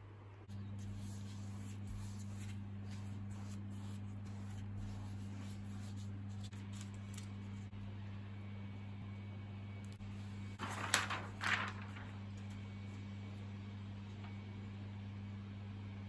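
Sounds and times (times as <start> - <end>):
low electrical hum: 0.0 - 16.0
brush swishing on paper: 0.7 - 7.2.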